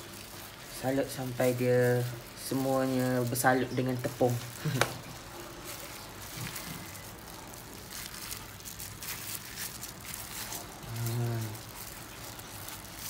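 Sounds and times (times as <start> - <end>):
hands coating chicken in flour: 0.0 - 13.0
low voice: 10.8 - 11.6.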